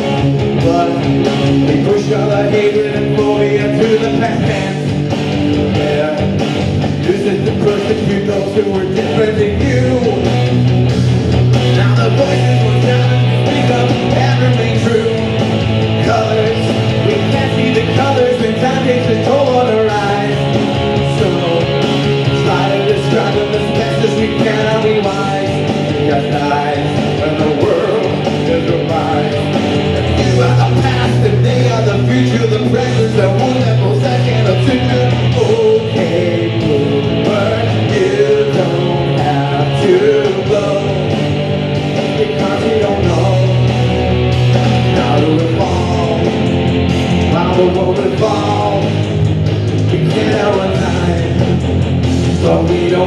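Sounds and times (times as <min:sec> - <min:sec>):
man singing into a microphone: 0:00.0 - 0:10.5, 0:11.6 - 0:41.3, 0:42.0 - 0:43.8, 0:44.6 - 0:46.6, 0:47.2 - 0:51.6, 0:52.3 - 0:53.0
electric guitar: 0:00.0 - 0:53.0
steady beat: 0:00.0 - 0:53.0.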